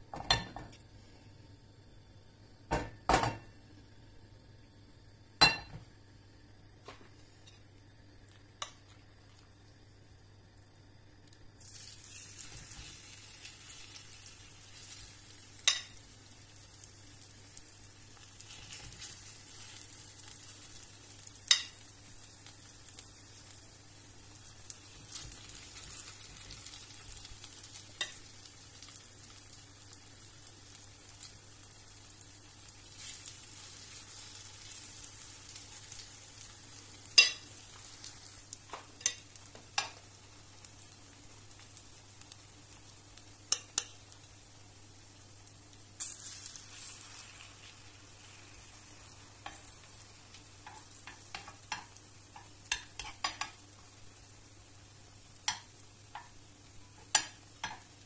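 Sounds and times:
batter sizzling in oil: 0.1 - 58.0
metal spoon clinking on pan: 15.6 - 16.0, 37.2 - 37.5.

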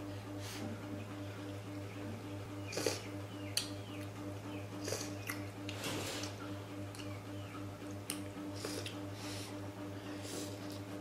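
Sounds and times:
low electrical hum: 0.0 - 11.0
mouth smacks and chewing: 4.8 - 7.2.

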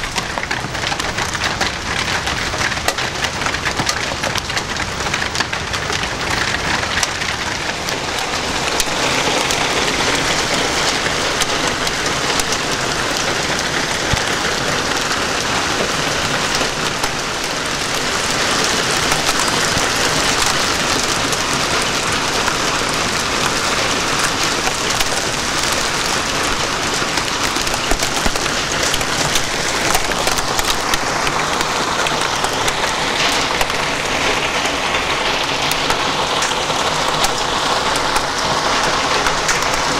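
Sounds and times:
hail and rain on metal roofing: 0.0 - 39.9.

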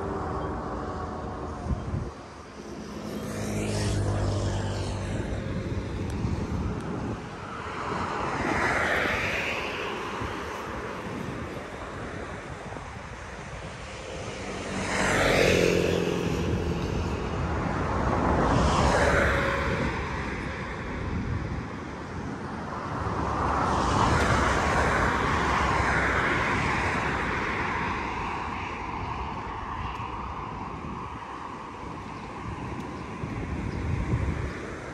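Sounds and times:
road traffic passing: 0.0 - 34.9.

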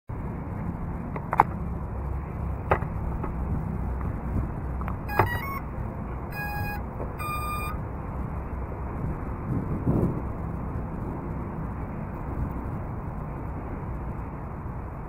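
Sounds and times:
outdoor background noise: 0.1 - 15.0
stepped electronic tones: 5.0 - 5.7, 6.3 - 7.8
longer electronic beeps: 5.1 - 5.7, 6.3 - 7.8.

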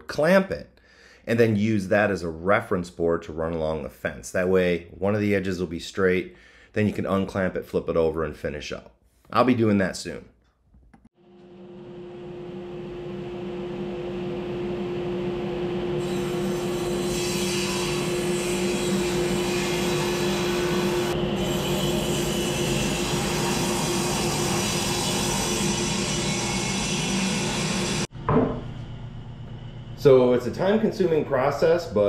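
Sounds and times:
table saw motor hum: 11.3 - 28.1.

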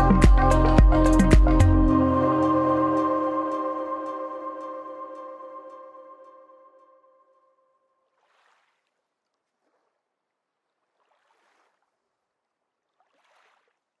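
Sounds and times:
music note: 0.0 - 7.3.

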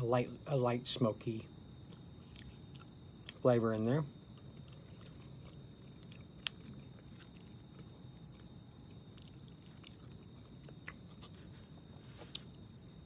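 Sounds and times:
faint chewing: 1.8 - 3.5, 4.2 - 13.0.

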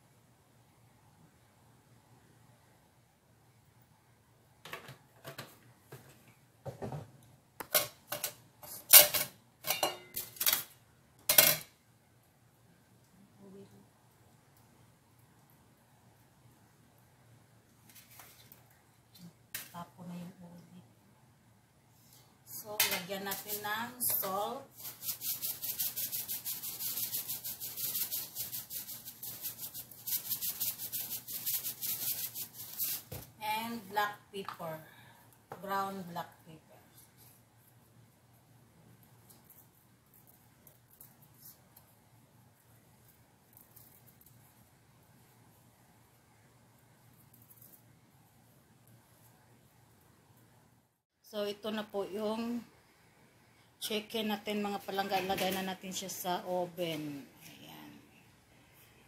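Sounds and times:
salt rattling in plastic shaker: 24.2 - 33.2
hands rubbing chicken on metal tray: 24.7 - 33.1.

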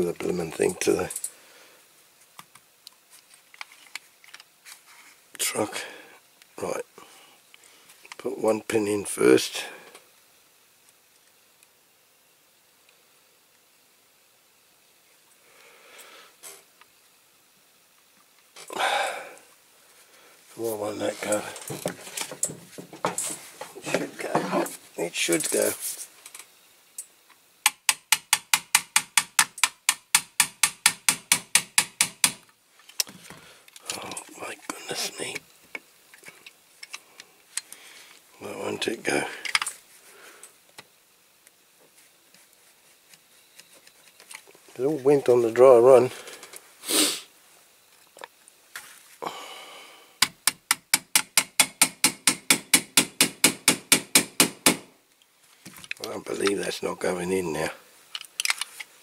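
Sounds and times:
small hammer tapping metal: 27.6 - 32.4, 50.2 - 54.9
small hammer tapping metal pin: 50.2 - 54.8.

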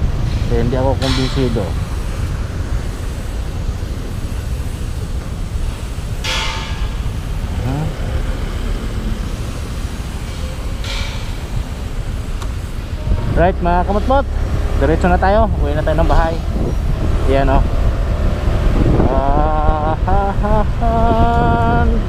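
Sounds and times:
motorcycle engine rumble: 0.0 - 22.0
high-pitched horn blasts: 12.9 - 14.1.

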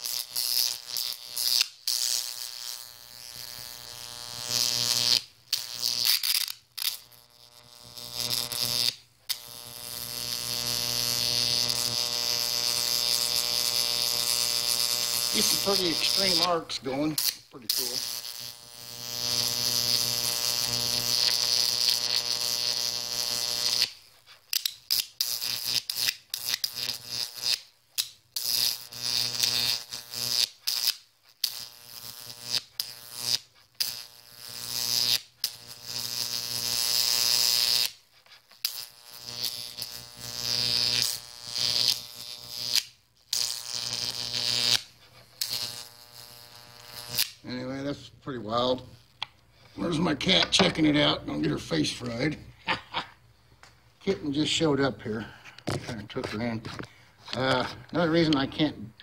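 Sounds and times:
electric arc buzzing and crackling: 0.0 - 59.0.

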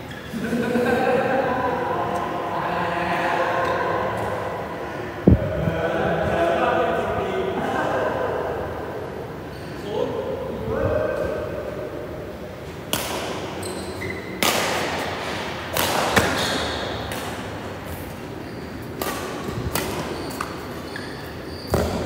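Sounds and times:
racket hitting shuttlecock: 12.9 - 13.6, 14.3 - 17.6, 18.8 - 20.7
sneakers squeaking on court: 13.5 - 14.4, 17.9 - 22.0.

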